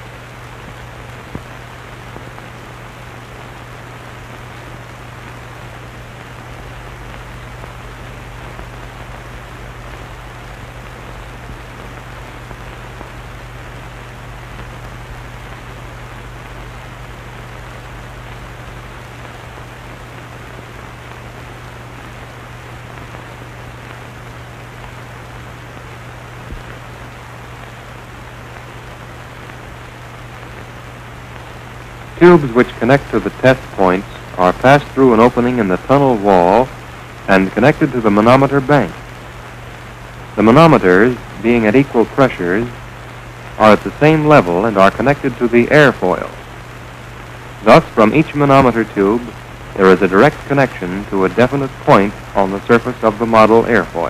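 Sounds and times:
steady hiss: 0:00.0 - 0:54.0.

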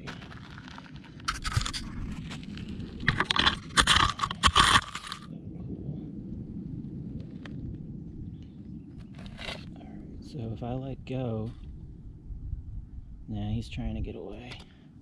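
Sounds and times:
scraping and crunching on gravelly dirt: 0:00.0 - 0:05.3, 0:08.3 - 0:10.0.

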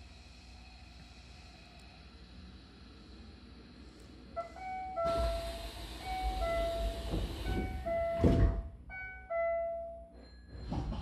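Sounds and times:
sliding doors hissing: 0:00.0 - 0:08.6
two-note door chime: 0:06.2 - 0:10.7
doors shutting with thud: 0:06.9 - 0:08.8.

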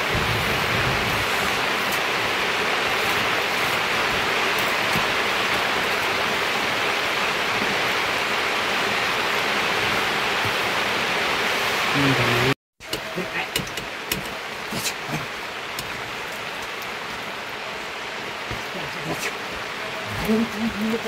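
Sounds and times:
water rushing: 0:00.0 - 0:21.0.

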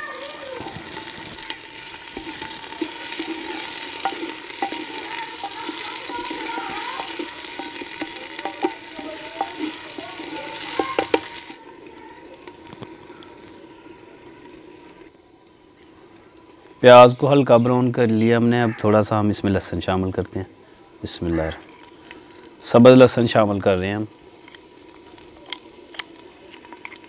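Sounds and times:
onions sizzling in oil: 0:00.0 - 0:27.0
spatula knocking on pot: 0:02.2 - 0:11.4.

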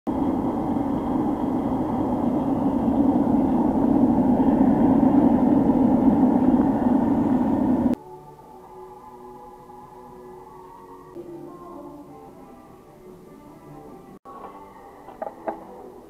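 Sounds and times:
furnace forced air and flame: 0:00.1 - 0:08.0.

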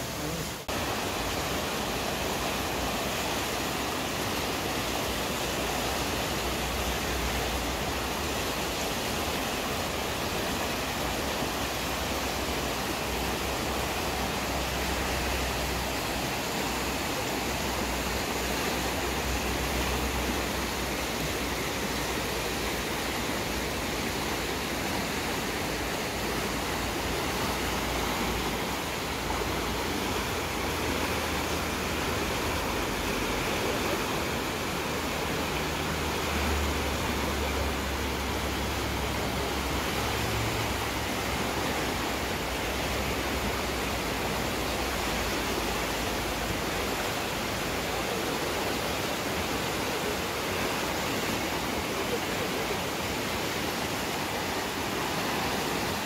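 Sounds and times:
river rushing over rapids: 0:00.0 - 0:56.0.

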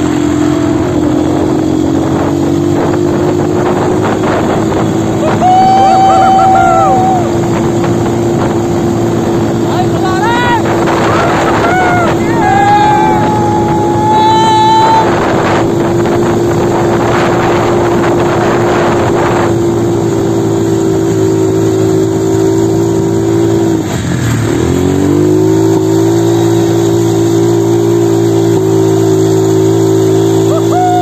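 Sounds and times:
quad bike engine revving: 0:00.0 - 0:31.0
wind on microphone: 0:00.3 - 0:21.0.

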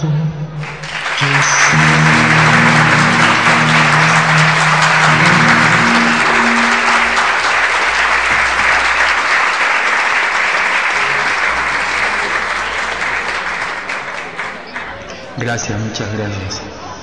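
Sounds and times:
audience applauding: 0:00.6 - 0:15.6
guitar chord ringing: 0:01.3 - 0:09.2.

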